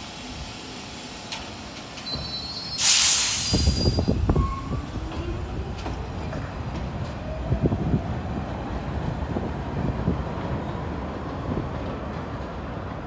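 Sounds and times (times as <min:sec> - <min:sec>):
train cars rumbling: 0:00.0 - 0:13.0.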